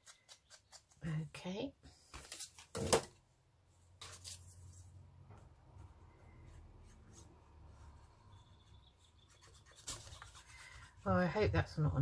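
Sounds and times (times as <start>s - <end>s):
paper rubbing: 6.8s - 11.4s.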